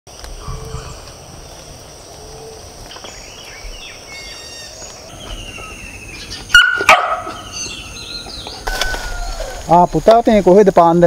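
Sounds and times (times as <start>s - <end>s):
insect calls: 0.1s - 11.0s
bird calls: 0.2s - 10.0s
dog barking: 6.5s - 7.4s.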